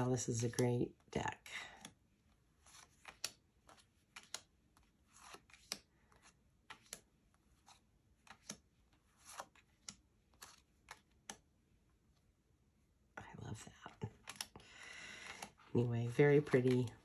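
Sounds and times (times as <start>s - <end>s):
cards snapping and sliding: 2.6s - 11.5s, 14.2s - 15.6s.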